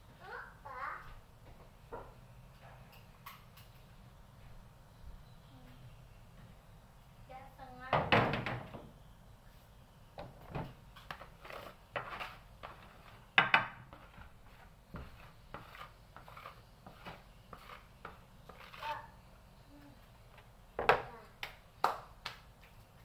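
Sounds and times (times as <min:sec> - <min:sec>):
kitchen work knocks and clatter: 0:01.6 - 0:03.8, 0:07.9 - 0:08.9, 0:10.2 - 0:11.3, 0:12.0 - 0:15.8, 0:20.8 - 0:21.1.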